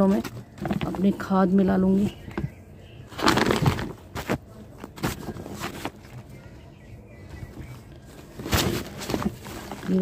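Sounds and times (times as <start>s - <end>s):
plastic sack crinkling: 3.1s - 6.2s, 7.6s - 10.0s.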